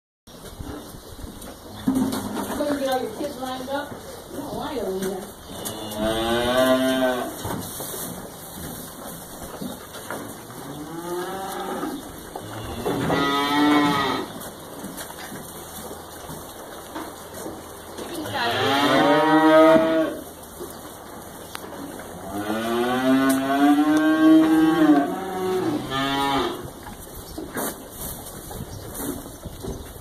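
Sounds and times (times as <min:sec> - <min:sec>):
cows mooing: 0:05.4 - 0:07.4, 0:10.5 - 0:14.4, 0:18.2 - 0:20.3, 0:22.1 - 0:26.8.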